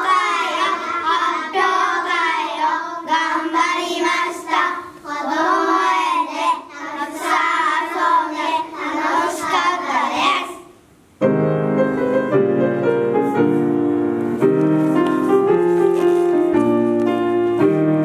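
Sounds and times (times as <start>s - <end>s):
young children singing together: 0.0s - 10.8s.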